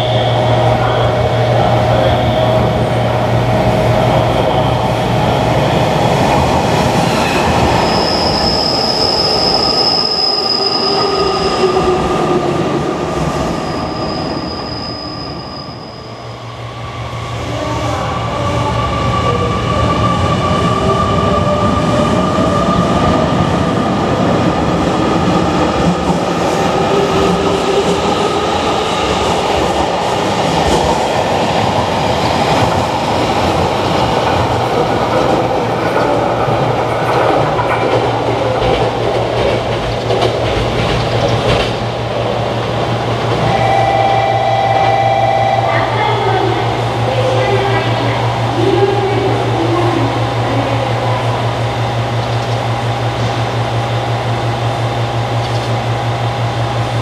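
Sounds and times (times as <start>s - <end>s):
electric train passing close by: 0.0s - 57.0s
train wheels squealing: 7.0s - 12.3s, 13.2s - 16.6s.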